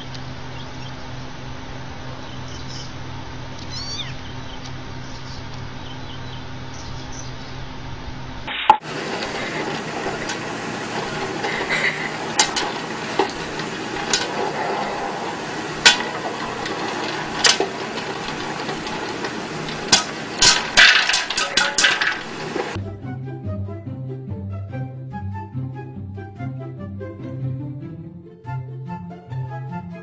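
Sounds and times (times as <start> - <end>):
popcorn popper sizzling: 8.5 - 22.8
popcorn kernels popping: 8.7 - 22.8.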